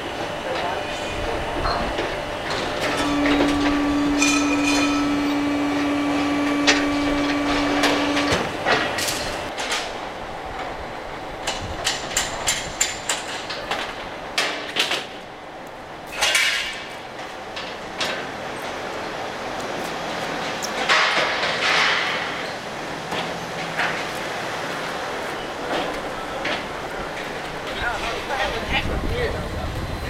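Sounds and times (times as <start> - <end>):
steady hum: 0.0 - 12.8
metal knocks and clanks: 1.6 - 10.0, 20.8 - 24.1
metal scraping: 2.8 - 9.5.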